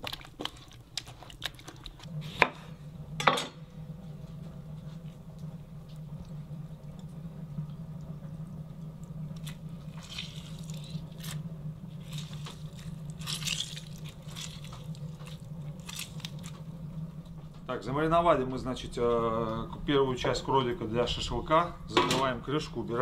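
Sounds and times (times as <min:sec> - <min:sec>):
meat squelching in marinade: 0:00.0 - 0:02.1, 0:09.4 - 0:16.7
steady low hum: 0:00.0 - 0:23.0.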